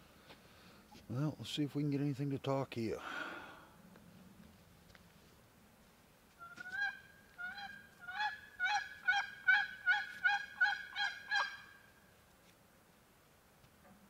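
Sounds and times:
turkey call hen yelps: 6.4s - 11.8s.

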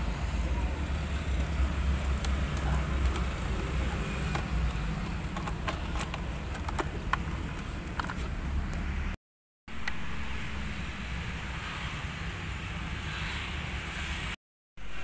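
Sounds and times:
plastic clicks and rattles: 4.2s - 8.3s.

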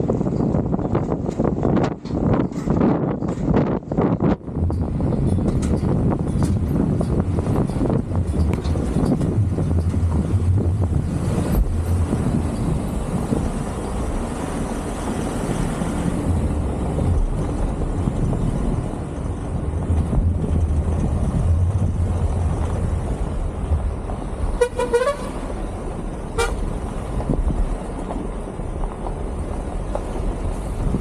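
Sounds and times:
motorcycle engine and road noise: 0.0s - 31.0s
vehicle horn toots: 24.6s - 25.5s, 26.3s - 26.7s.

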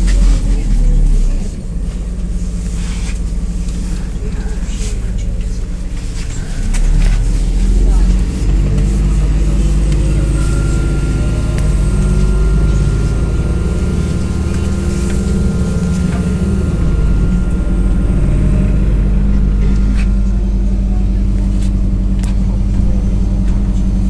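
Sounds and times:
bus diesel engine with road noise: 0.0s - 24.0s
thin steady high tone: 9.4s - 20.8s.

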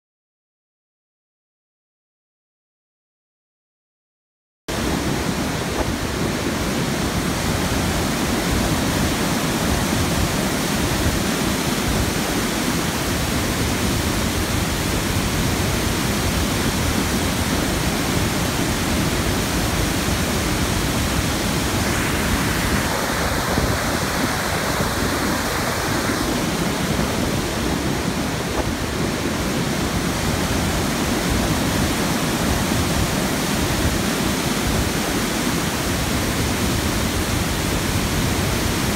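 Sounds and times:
water rushing over spillway: 4.7s - 38.9s
bright hiss of water: 20.5s - 29.4s.

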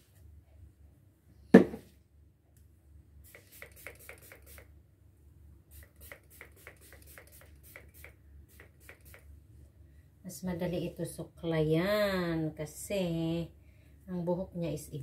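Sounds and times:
sharp knock: 1.6s - 1.8s.

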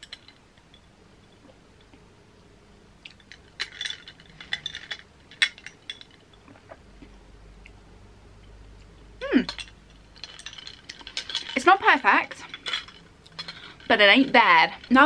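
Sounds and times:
ice and straw clinking in glass: 3.1s - 6.3s, 9.5s - 15.0s.

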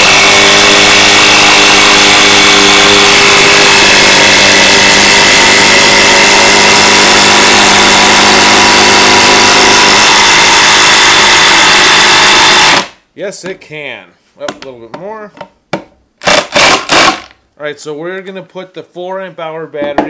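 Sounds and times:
impact driver hammering: 15.8s - 17.3s.

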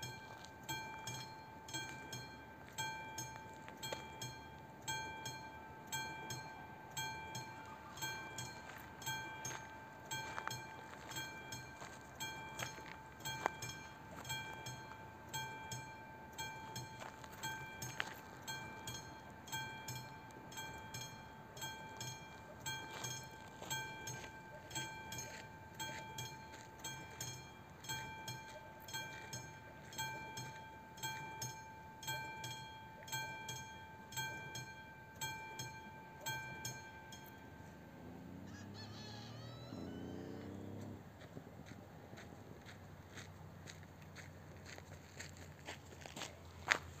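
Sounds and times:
level crossing warning bell ringing: 0.0s - 47.0s
short gliding pitch sound: 38.1s - 41.0s.

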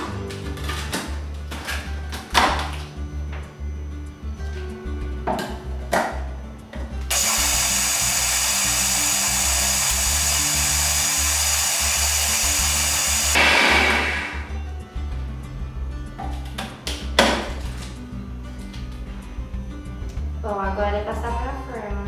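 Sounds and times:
background music: 0.0s - 22.0s
food processor motor running: 7.1s - 14.3s.

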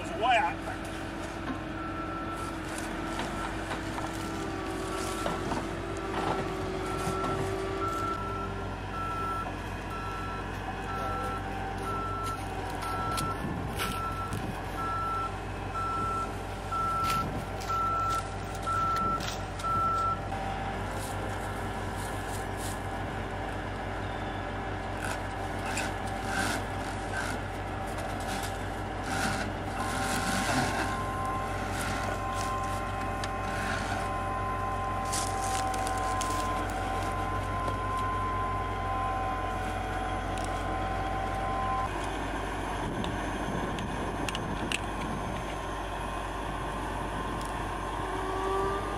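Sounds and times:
diesel engine running: 0.0s - 48.9s
backup alarm beeping: 6.8s - 20.4s, 29.7s - 41.9s.

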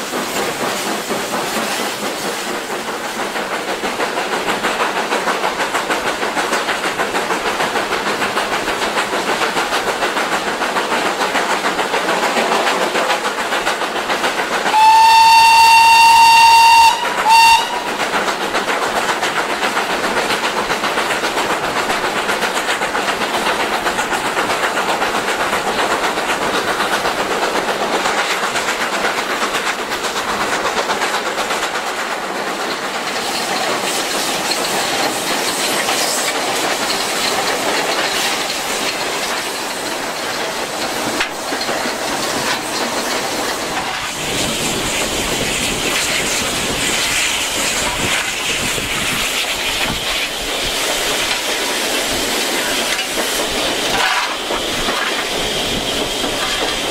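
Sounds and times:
steam locomotive running: 0.0s - 56.9s
steam locomotive whistle: 14.7s - 18.0s.

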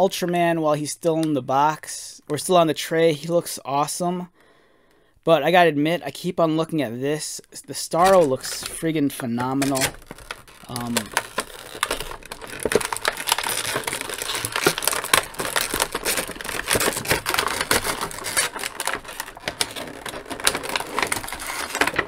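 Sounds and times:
plastic packaging film crinkling: 7.9s - 22.0s.

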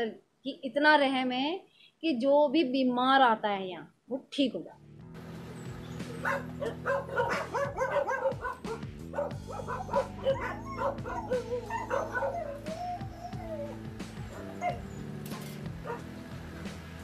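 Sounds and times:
background music: 4.3s - 17.0s
dogs barking and crying: 5.5s - 16.1s.

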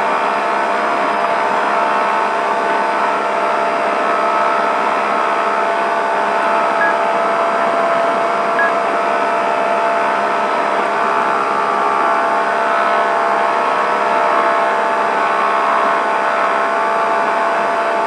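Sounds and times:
engine drone: 0.0s - 18.0s
short high beeps: 6.7s - 7.0s, 7.6s - 8.9s.

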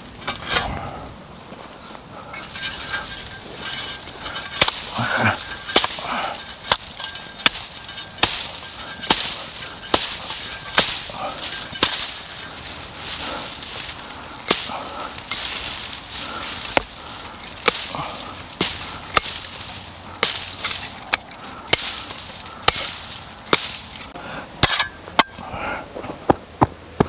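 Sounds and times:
dry stalks crackling: 0.0s - 26.1s
hand tools chopping reeds: 2.3s - 25.4s.

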